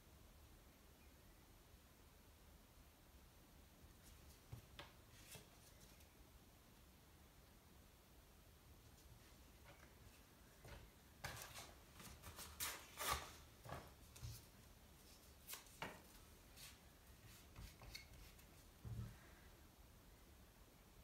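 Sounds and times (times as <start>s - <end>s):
card and paper rustling: 11.2s - 18.5s.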